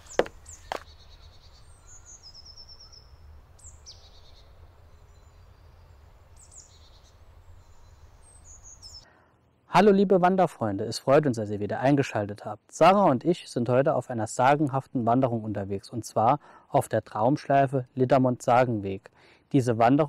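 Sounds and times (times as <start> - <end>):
footstep on gravel: 0.0 - 0.9
small birds chirping: 0.0 - 9.2.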